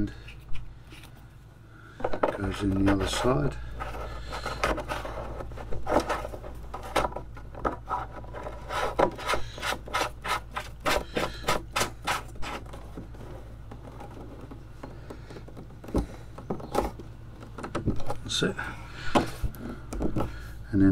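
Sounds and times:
plastic nut scratchy rubbing: 0:02.3 - 0:18.2.

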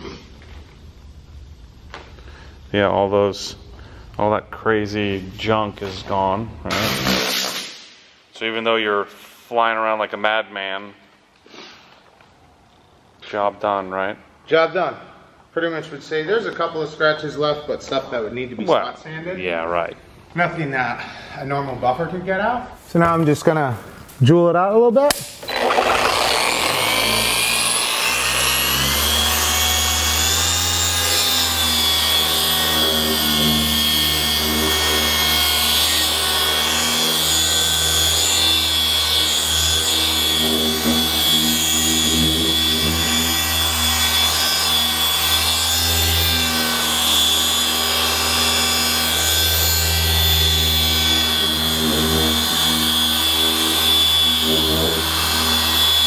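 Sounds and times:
paint polisher whining: 0:06.7 - 0:07.8, 0:25.2 - 0:56.0.

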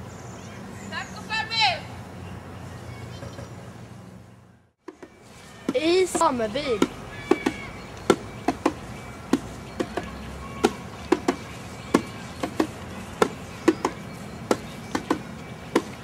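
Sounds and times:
sharp knocks: 0:04.8 - 0:16.0.

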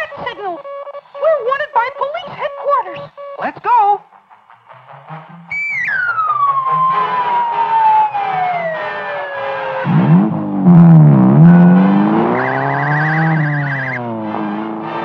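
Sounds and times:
low wavering siren-like tone: 0:05.3 - 0:14.4
fast-warbling high tone: 0:05.4 - 0:14.1
descending cartoon whistle: 0:05.5 - 0:10.0, 0:11.4 - 0:14.1.

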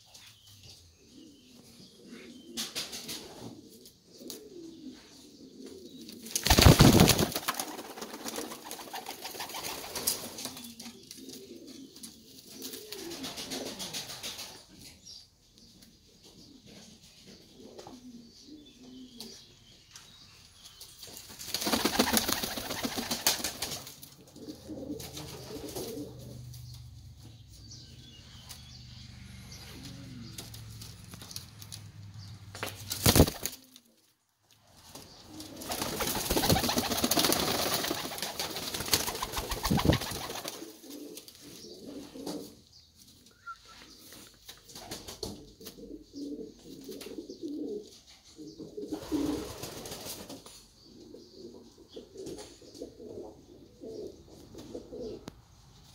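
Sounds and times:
pigeons cooing: 0:01.0 - 0:14.7, 0:16.3 - 0:19.5, 0:21.6 - 0:26.9, 0:29.5 - 0:31.4, 0:35.1 - 0:42.7, 0:45.2 - 0:50.2, 0:50.8 - 0:55.4
wings flapping: 0:06.3 - 0:10.8, 0:21.3 - 0:24.0, 0:32.5 - 0:33.8, 0:34.9 - 0:40.7.

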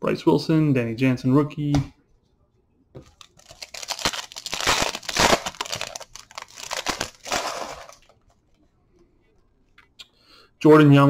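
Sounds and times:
foil wrapper crinkling and tearing: 0:03.1 - 0:08.2.

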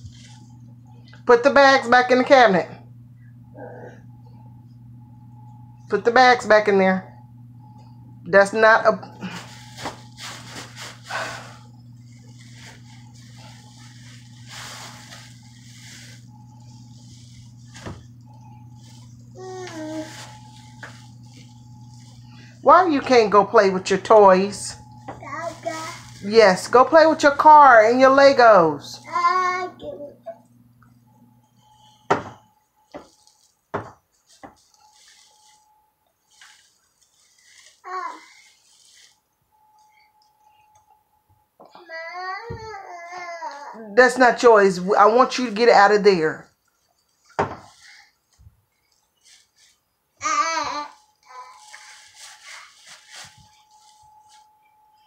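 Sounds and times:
plastic bags rustling: 0:00.0 - 0:00.6, 0:09.0 - 0:29.3, 0:32.8 - 0:39.9, 0:46.8 - 0:55.0
steady low hum: 0:00.0 - 0:42.9, 0:43.7 - 0:55.0
knocks on wooden cabinet: 0:32.1 - 0:32.4, 0:33.7 - 0:34.0.

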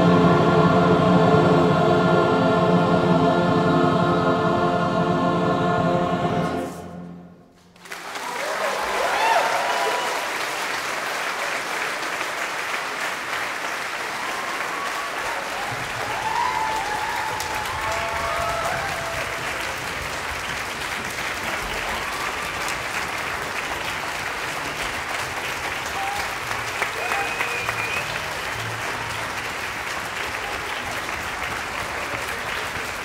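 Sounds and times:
audience applauding: 0:07.7 - 0:33.0
audience cheering: 0:07.8 - 0:33.0.

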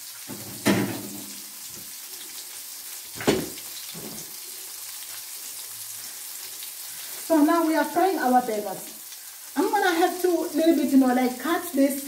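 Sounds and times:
burger patties sizzling in oil: 0:00.0 - 0:12.0
sharp knock: 0:03.2 - 0:03.6.

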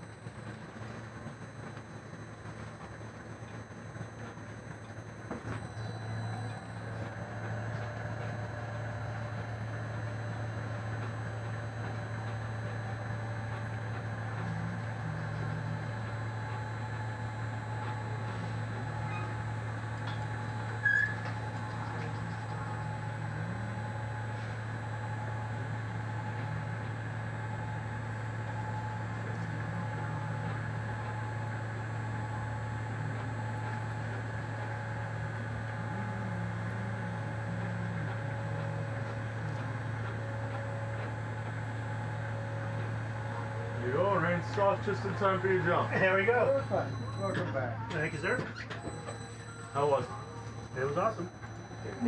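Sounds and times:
winch motor humming: 0:00.0 - 0:52.0.

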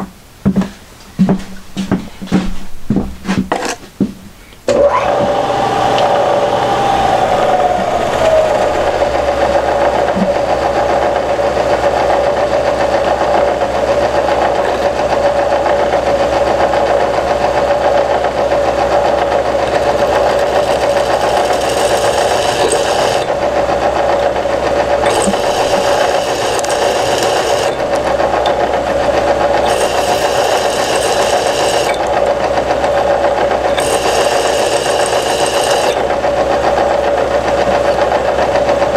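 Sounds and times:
power tool motor humming: 0:04.7 - 0:10.8, 0:19.7 - 0:23.5, 0:25.0 - 0:28.4, 0:29.4 - 0:32.4, 0:33.7 - 0:36.1.

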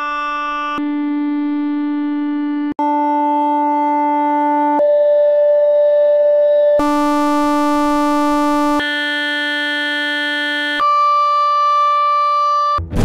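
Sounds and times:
high beep-like tone: 0:06.8 - 0:08.8
held electronic tones: 0:06.8 - 0:12.8.

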